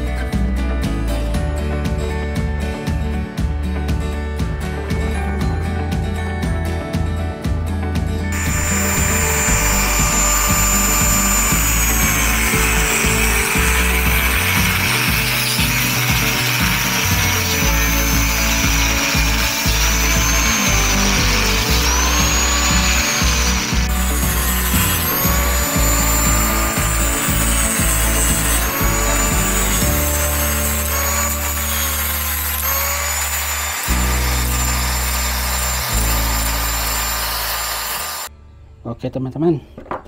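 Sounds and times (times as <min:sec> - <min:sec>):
background music: 0:00.0 - 0:37.5
angle grinder cutting wire mesh: 0:08.4 - 0:38.3.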